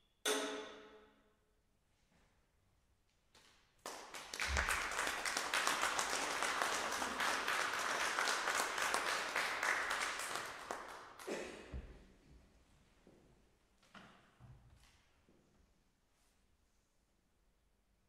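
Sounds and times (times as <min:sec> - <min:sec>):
small audience applauding: 0:03.8 - 0:11.8.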